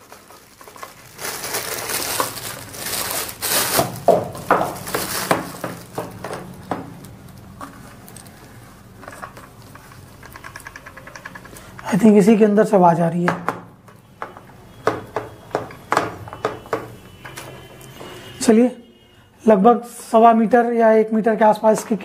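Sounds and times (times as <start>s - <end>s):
handling cable: 0.0s - 12.4s, 13.4s - 18.4s
plastic bag crinkling: 0.0s - 12.4s.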